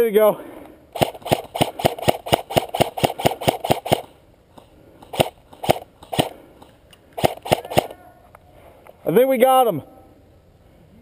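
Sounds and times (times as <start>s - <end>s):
airsoft rifle shots: 1.0s - 4.2s, 5.0s - 6.4s, 7.2s - 8.0s.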